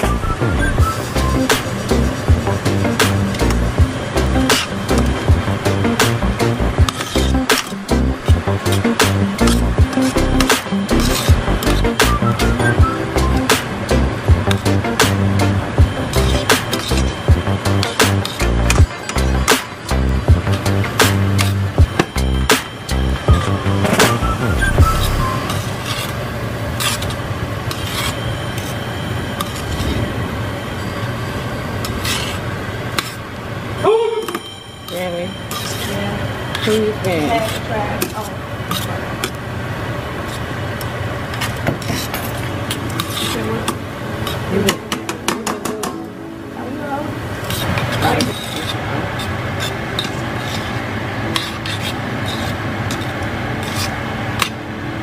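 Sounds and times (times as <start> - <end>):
onions sizzling: 0.8 - 34.3
tongs scraping a pan: 1.0 - 5.2, 5.8 - 12.6, 14.5 - 22.3, 24.9 - 30.0, 31.8 - 33.2, 34.9 - 39.4, 40.2 - 44.5, 47.4 - 54.5
tongs clicking on metal: 8.6 - 12.0.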